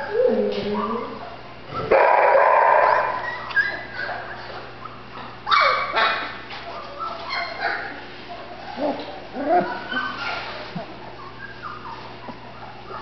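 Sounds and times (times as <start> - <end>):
puppy whimpering and yipping: 2.9 - 4.5, 6.7 - 7.9, 8.7 - 13.0.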